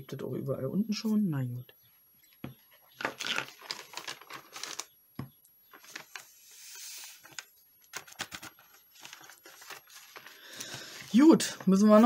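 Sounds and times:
paper rustling: 3.0s - 4.9s, 5.7s - 12.0s
powder sliding hiss: 6.4s - 7.3s.

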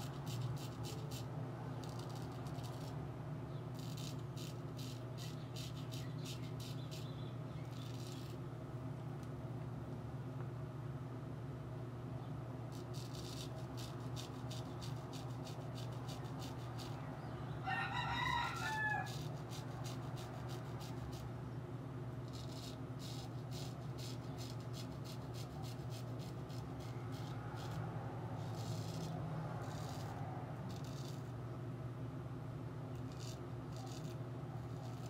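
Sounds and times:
razor scraping stubble: 0.0s - 3.0s, 3.6s - 8.4s, 12.7s - 21.4s, 22.2s - 31.4s, 32.9s - 35.0s
rooster crowing: 17.5s - 19.4s.

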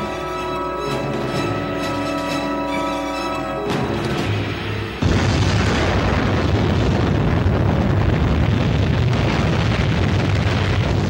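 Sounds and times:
explosion blast and rumble: 4.2s - 11.0s.

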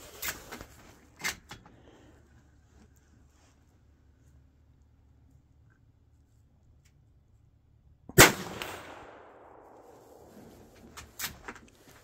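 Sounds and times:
rifle shot with echo: 8.2s - 10.8s.

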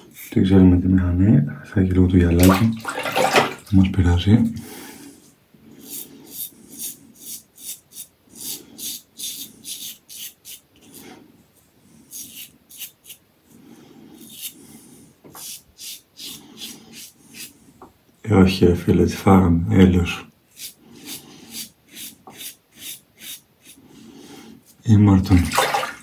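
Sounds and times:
razor scraping stubble: 5.8s - 11.1s, 12.0s - 13.2s, 15.3s - 17.6s, 20.5s - 23.8s.

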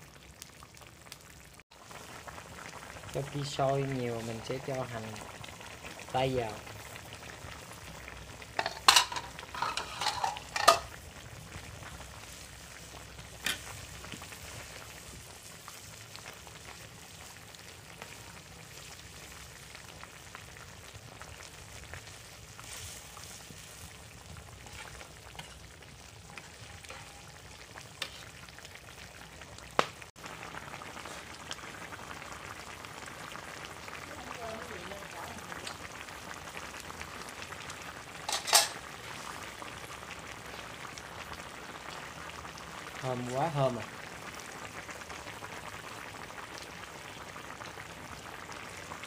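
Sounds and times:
curry bubbling in a wok: 0.0s - 49.0s
ladle knocking a pan: 8.6s - 10.9s.

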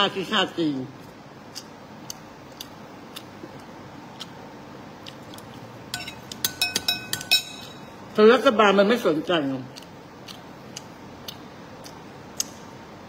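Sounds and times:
person chewing food: 1.0s - 6.4s, 9.7s - 12.6s
metal spoon clinking on plate: 5.9s - 7.9s.

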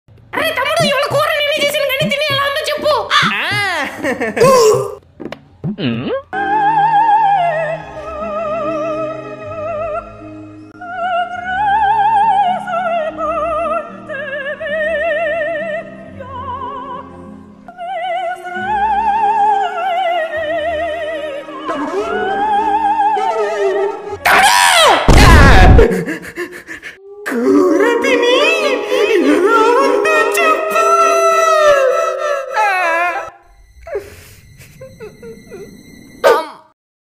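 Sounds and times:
operatic soprano singing: 6.3s - 24.2s, 27.0s - 33.4s
sudden loud burst: 25.0s - 25.9s
orchestral accompaniment: 27.7s - 32.2s.

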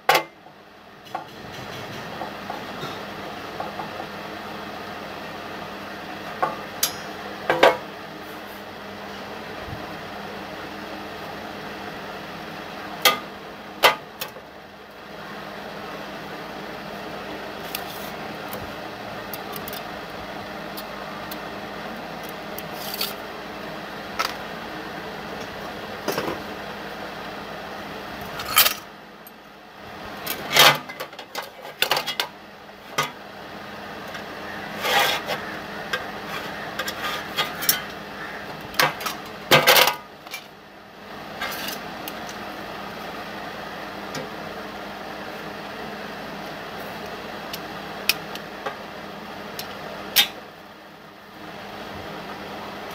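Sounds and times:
steady low hum: 0.0s - 52.9s
steel parts clinking and scraping: 22.2s - 23.2s, 28.4s - 28.8s, 34.7s - 38.0s, 41.4s - 42.4s.

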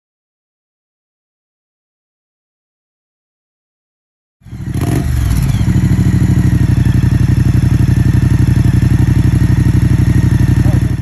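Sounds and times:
motorcycle engine starting and idling: 4.4s - 11.0s.

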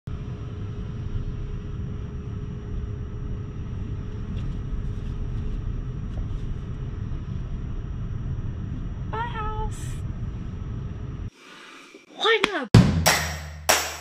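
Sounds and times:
faint steady hum: 0.1s - 12.4s.

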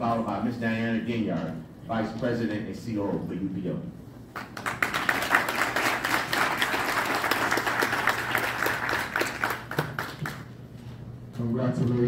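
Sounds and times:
audience applauding: 4.4s - 10.5s.

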